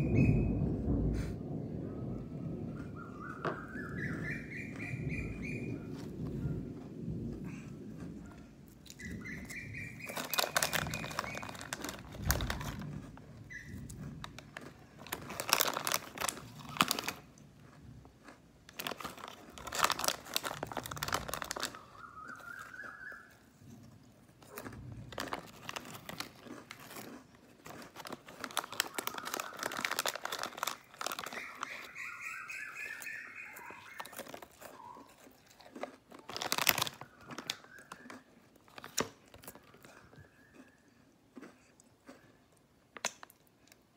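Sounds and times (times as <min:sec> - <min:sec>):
birds chirping: 0:01.9 - 0:06.8, 0:08.2 - 0:12.3, 0:21.6 - 0:23.5, 0:30.8 - 0:35.1
crackers being chewed: 0:03.3 - 0:43.9
plastic packet crinkling: 0:08.9 - 0:23.3, 0:24.4 - 0:40.3.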